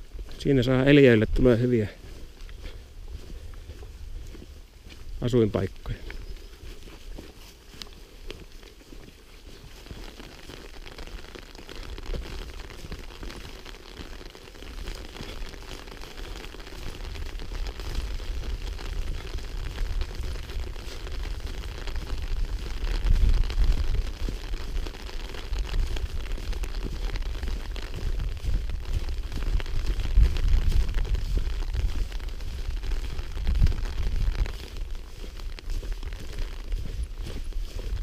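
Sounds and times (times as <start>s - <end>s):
wind buffeting microphone: 16.8s - 38.0s.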